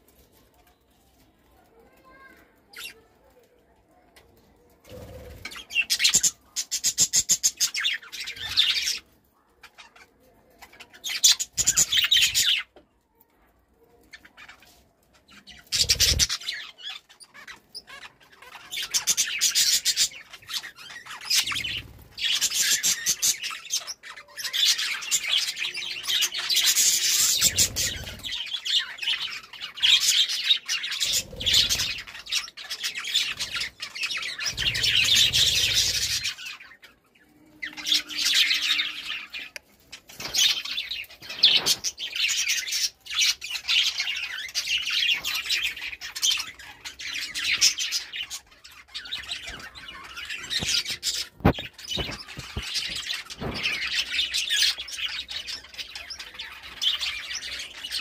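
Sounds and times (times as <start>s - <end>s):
budgerigars chattering and chirping: 15.4s - 36.9s.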